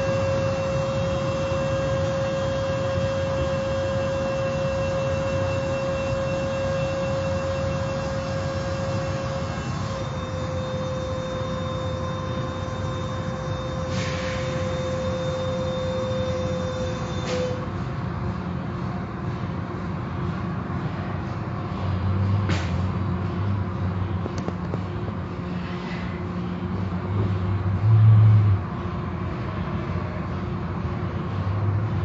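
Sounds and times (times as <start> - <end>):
whining tone: 0.0 - 17.9
car wash machinery rumble: 0.0 - 32.0
short hisses: 13.9 - 14.5.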